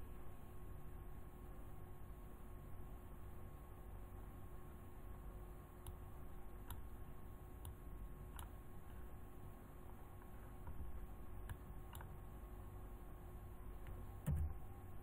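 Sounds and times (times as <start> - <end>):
low electrical hum and hiss: 0.0 - 15.0
faint computer mouse clicks: 7.6 - 8.6, 11.4 - 12.1.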